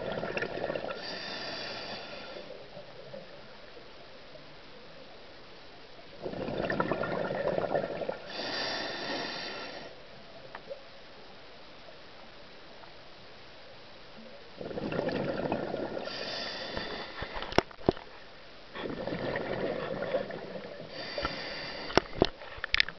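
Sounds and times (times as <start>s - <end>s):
exhaled bubbles underwater: 0.0s - 1.2s, 6.2s - 8.5s, 14.6s - 17.0s, 18.8s - 21.5s
regulator hissing inhale: 1.0s - 2.6s, 8.3s - 10.0s, 16.0s - 17.6s, 20.9s - 22.3s.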